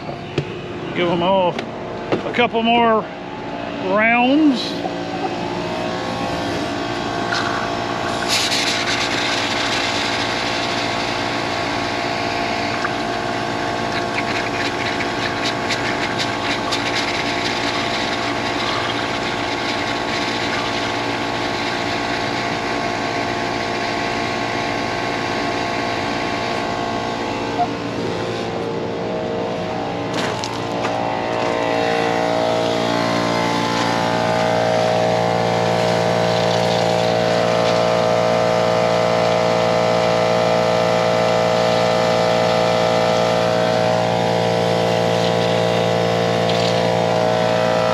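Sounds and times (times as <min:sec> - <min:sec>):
air compressor running: 0:00.0 - 0:47.9
compressed air hissing: 0:08.0 - 0:11.2.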